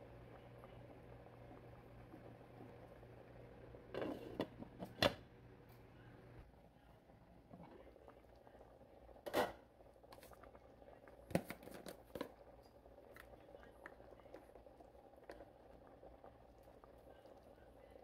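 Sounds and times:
glass lid scraping clatter: 3.9s - 4.5s
sauce bubbling: 7.2s - 18.0s.

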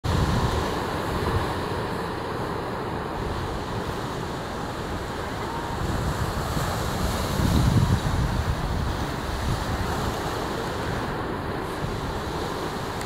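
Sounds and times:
ocean surf: 0.0s - 13.0s
wind rumbling on microphone: 0.0s - 13.0s.

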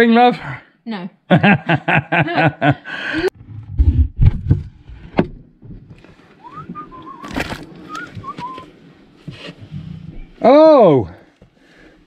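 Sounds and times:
woman laughing: 1.3s - 3.3s
short whistled notes: 6.4s - 8.7s.

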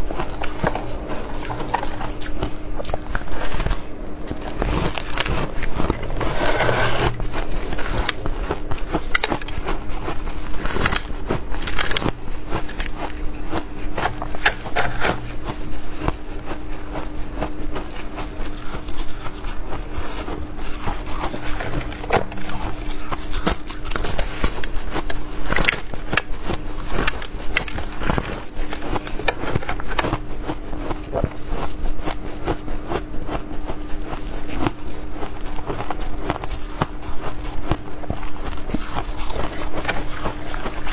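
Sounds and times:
faint steady hum: 0.0s - 40.9s.

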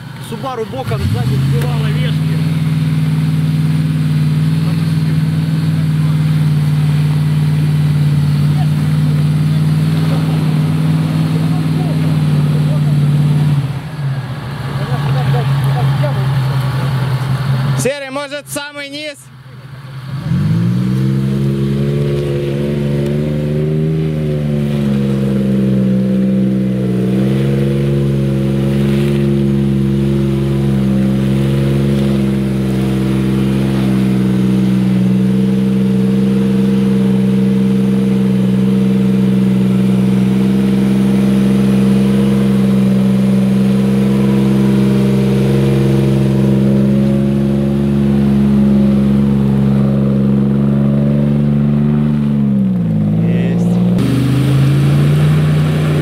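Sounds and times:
engine revving high: 0.0s - 18.2s, 20.0s - 56.0s.

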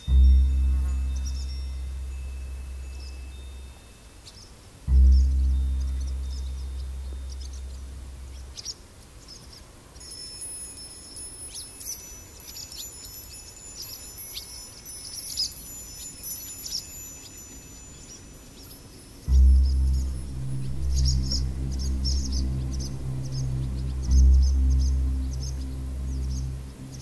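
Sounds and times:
deep low struck tone: 0.0s - 4.0s, 4.8s - 8.9s, 19.3s - 27.0s
high chime tones: 0.0s - 8.7s, 10.0s - 27.0s
birds chirping: 0.0s - 27.0s.

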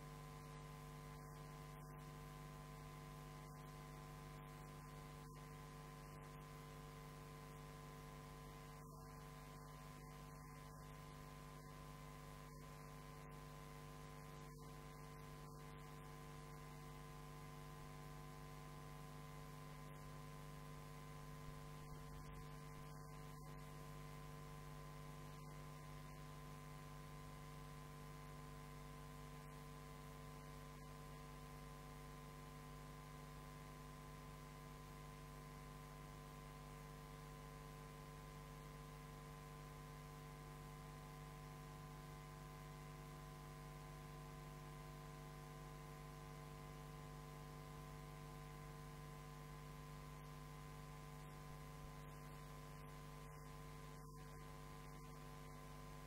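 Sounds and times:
steady electrical hum: 0.0s - 56.0s.

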